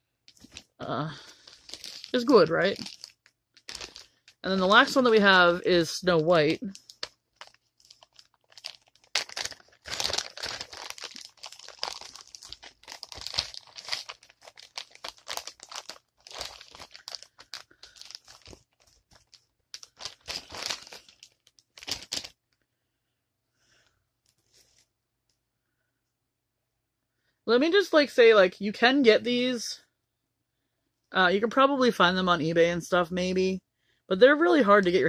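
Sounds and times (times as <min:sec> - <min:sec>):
plastic bag crinkling: 0:00.3 - 0:22.4.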